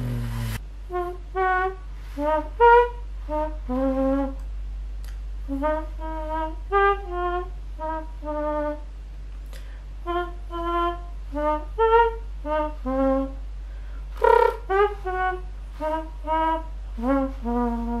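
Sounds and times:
mouth imitating a trumpet: 0:14.2 - 0:18.0.

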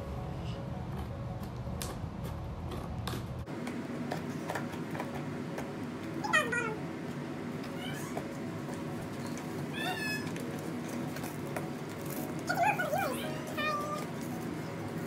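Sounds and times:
cat meowing: 0:07.6 - 0:08.2, 0:09.7 - 0:10.4.

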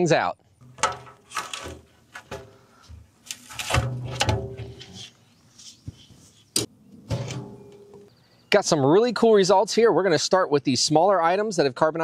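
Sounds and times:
metal clanks and knocks: 0:00.6 - 0:02.6, 0:03.5 - 0:05.0, 0:07.0 - 0:08.1
steel door scraping: 0:00.6 - 0:02.6, 0:03.3 - 0:05.1, 0:07.0 - 0:08.1.

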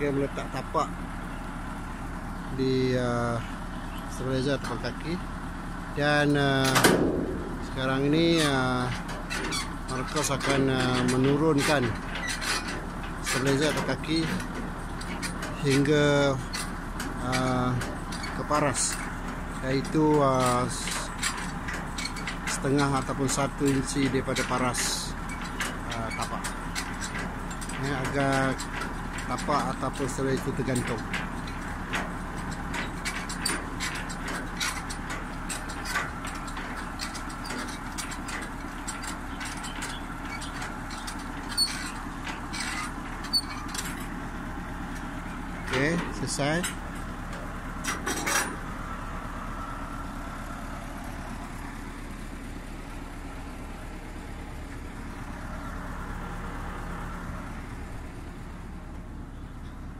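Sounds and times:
truck engine idling: 0:00.0 - 0:59.9
sharp metallic clicks: 0:06.2 - 0:49.0.

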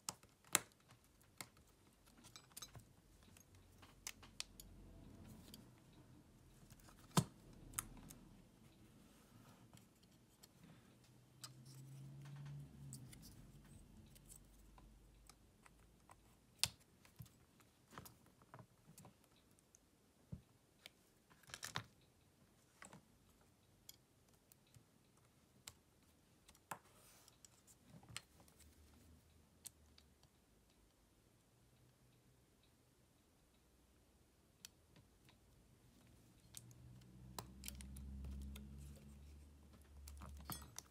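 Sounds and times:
hand tools clicking on phone parts: 0:39.8 - 0:40.9.

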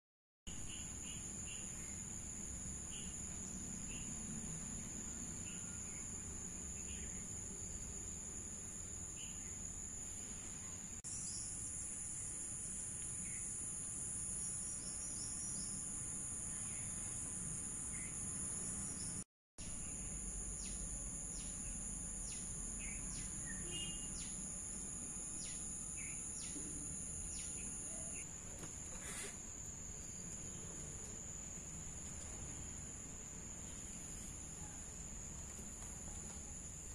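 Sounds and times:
insects droning: 0:00.5 - 0:36.9
bird chirps: 0:18.9 - 0:24.4.

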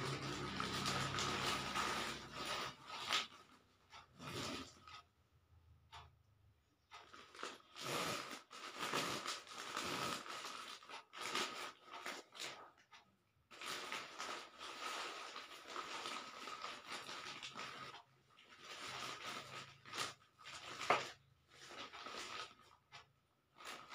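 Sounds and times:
plastic bag crinkling: 0:00.0 - 0:03.5, 0:07.0 - 0:12.6, 0:13.5 - 0:22.7.

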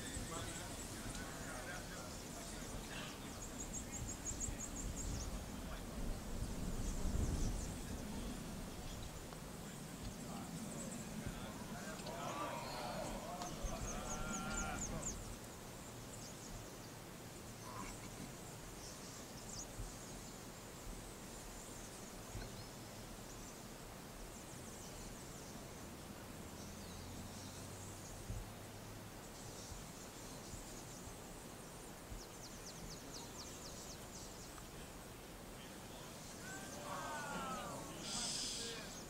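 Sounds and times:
birds and insects chirping: 0:00.0 - 0:39.0
low background hiss: 0:00.0 - 0:39.0.

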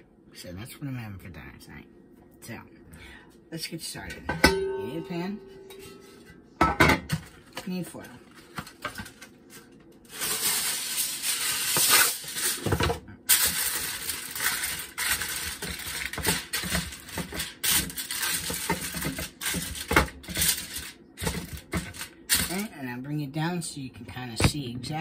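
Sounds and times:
aluminium foil crinkling: 0:07.3 - 0:22.7.

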